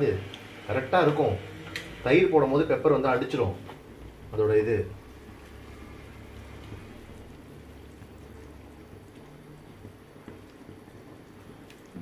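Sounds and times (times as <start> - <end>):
gravy bubbling in pan: 0.0 - 12.0
wooden spatula stirring liquid: 5.0 - 12.0.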